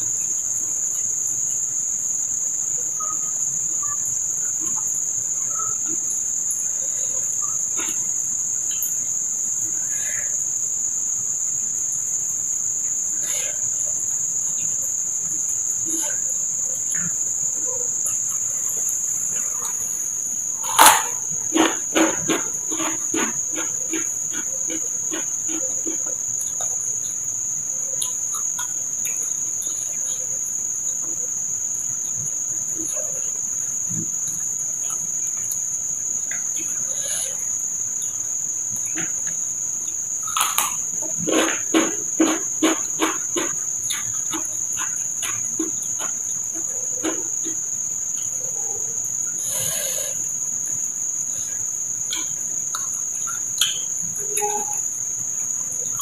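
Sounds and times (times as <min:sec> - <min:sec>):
crickets chirring: 0:00.0 - 0:56.0.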